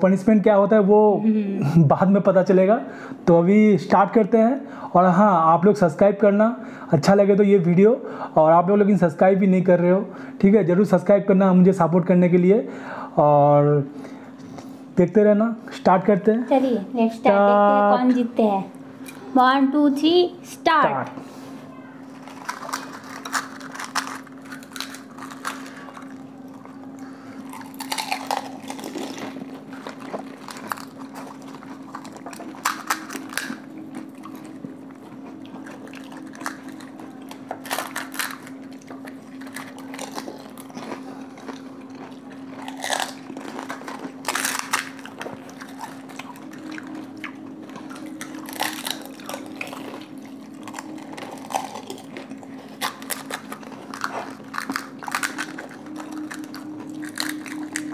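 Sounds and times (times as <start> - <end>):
steady low hum: 0.0 - 57.9
crunching and chewing: 22.1 - 57.9.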